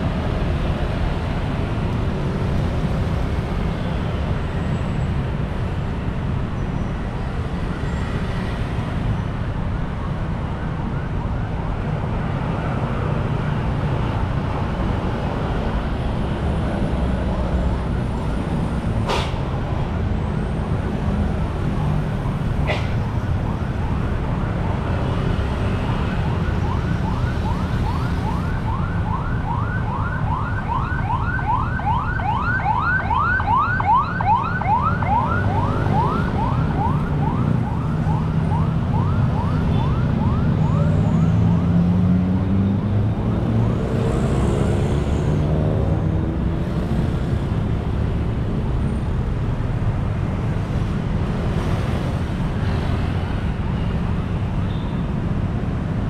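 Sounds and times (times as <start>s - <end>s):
road traffic passing: 0.0s - 56.0s
siren yelping: 21.4s - 41.7s.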